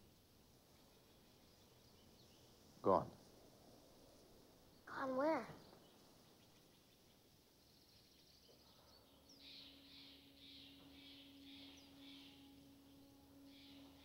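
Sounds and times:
faint low steady tone: 7.1 - 14.0
soft high chirps: 8.3 - 14.0.

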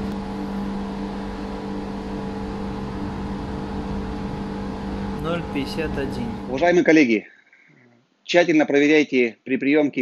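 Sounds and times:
machinery humming: 0.0 - 6.8.

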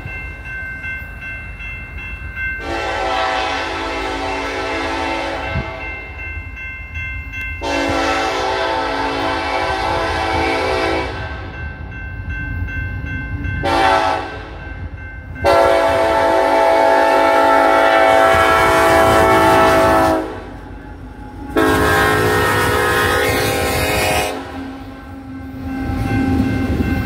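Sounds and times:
train rumble: 0.0 - 27.0
locomotive air horn: 2.6 - 5.8, 7.6 - 11.4, 13.6 - 14.5, 15.4 - 20.6, 21.5 - 24.9.

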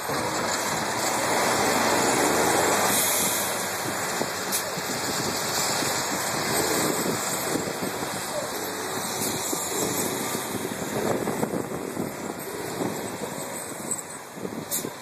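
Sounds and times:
tyres spinning in snow: 0.0 - 15.0.

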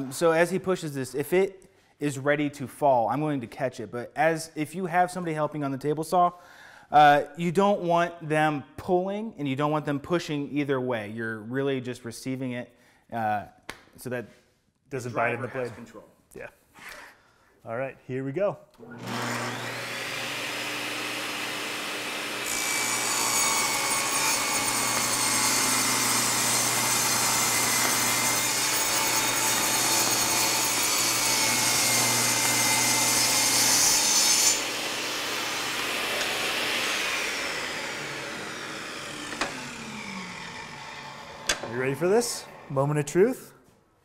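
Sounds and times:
saw motor winding down: 18.8 - 33.2, 34.5 - 42.9
table saw cutting wood: 18.8 - 43.2.

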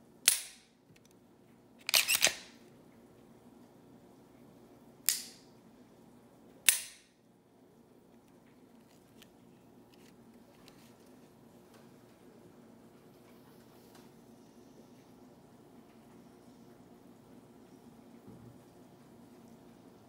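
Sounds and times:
pistol trigger clicks: 6.7 - 7.0.

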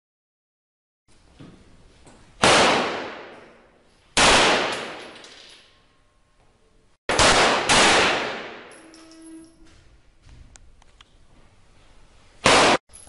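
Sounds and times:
pistol shots echoing: 2.4 - 3.5, 4.2 - 5.3, 7.1 - 8.7, 12.4 - 12.8.

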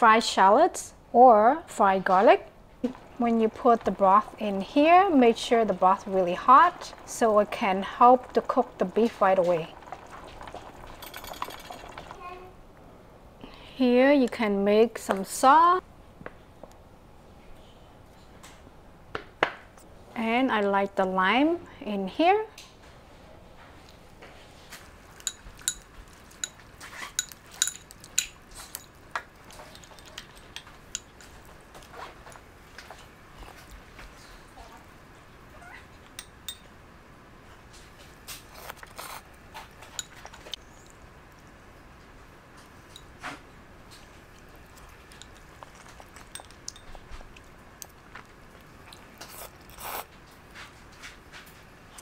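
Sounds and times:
spoon and chopsticks clinking bowl: 25.1 - 31.2, 36.2 - 36.7, 45.1 - 47.0
person chewing: 44.2 - 50.1.

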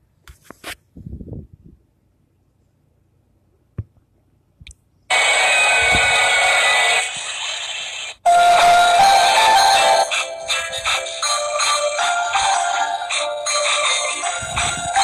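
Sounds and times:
loud music with held tones: 5.1 - 7.6, 8.3 - 15.0.

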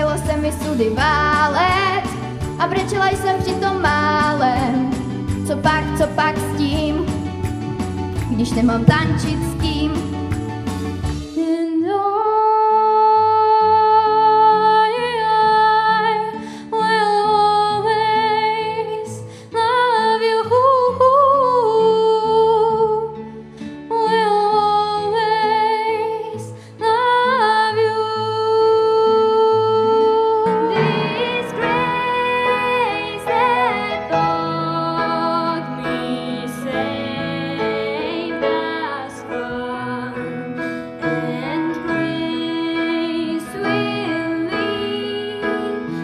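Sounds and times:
girl singing: 0.0 - 7.2, 8.3 - 10.1, 11.4 - 23.1, 23.9 - 40.4, 41.1 - 46.0
instrumental accompaniment: 1.2 - 11.4, 30.4 - 46.0.

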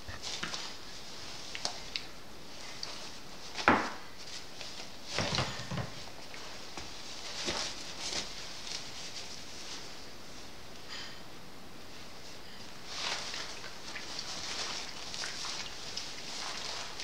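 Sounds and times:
puppies scuffling: 0.0 - 11.1, 11.9 - 17.0.

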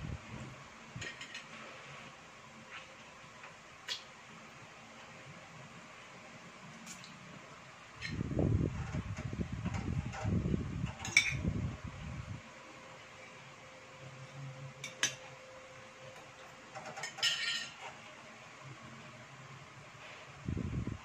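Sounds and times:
faint steady hum: 0.0 - 21.0
cutlery clinking on plates: 16.9 - 17.8
fork clattering on plate: 16.9 - 17.8.

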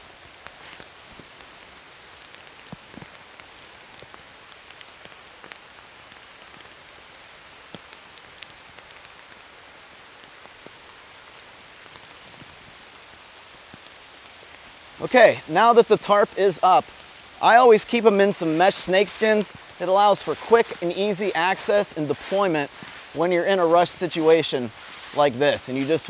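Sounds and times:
rain falling through forest: 0.0 - 26.0.

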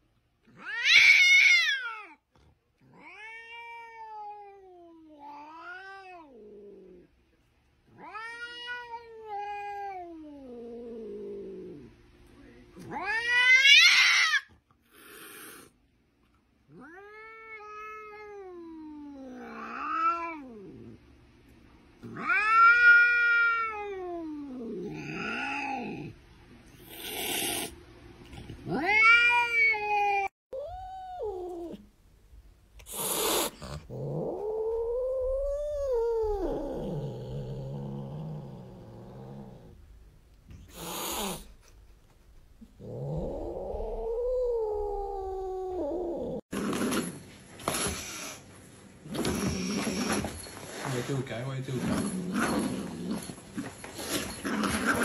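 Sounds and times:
cat meowing: 0.5 - 2.2, 2.8 - 6.6, 7.9 - 10.8, 12.8 - 15.6, 22.0 - 26.0, 28.6 - 31.8, 32.9 - 38.0.

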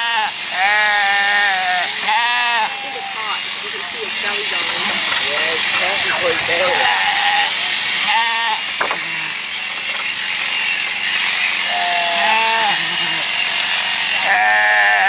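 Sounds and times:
sheep bleating: 0.0 - 5.1, 6.7 - 8.7, 11.7 - 13.4, 14.2 - 15.0
steady mechanical hum: 0.5 - 14.3.

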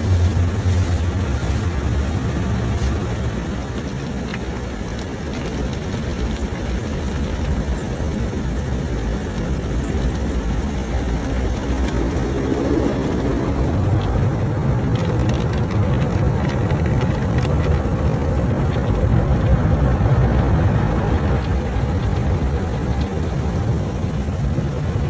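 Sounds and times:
car wash machinery rumble: 0.0 - 25.0
water spraying over windows: 0.0 - 25.0.

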